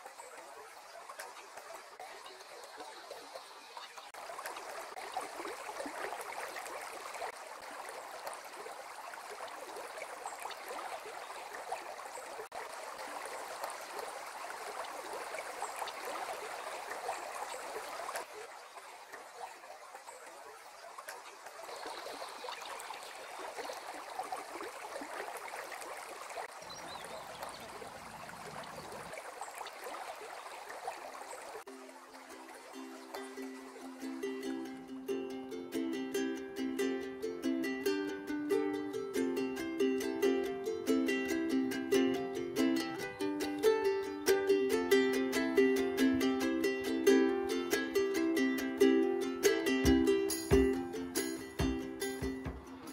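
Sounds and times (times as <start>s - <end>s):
river water babbling over stones: 0.0s - 52.9s
plucked string music: 31.7s - 52.9s.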